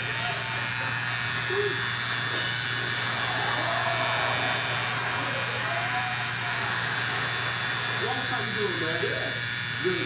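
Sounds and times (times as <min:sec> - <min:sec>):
electric hair clippers buzzing: 0:00.0 - 0:10.0.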